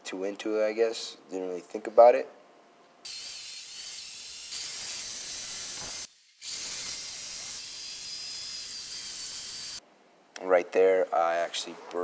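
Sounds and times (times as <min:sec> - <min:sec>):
electric drill whining: 0:03.1 - 0:09.8.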